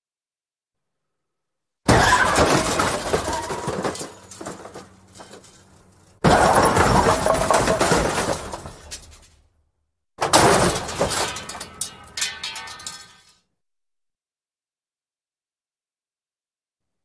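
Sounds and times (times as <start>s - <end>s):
shattering glass: 1.9s - 9.3s, 10.2s - 13.4s
car crash: 1.9s - 9.4s, 10.2s - 13.3s
scattering debris: 1.9s - 9.4s, 10.2s - 13.4s.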